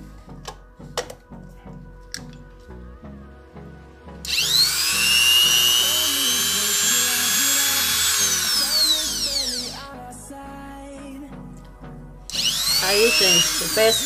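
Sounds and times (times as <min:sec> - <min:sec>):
background music: 0:00.0 - 0:14.0
appliance motor whine: 0:04.2 - 0:09.8, 0:12.3 - 0:14.0.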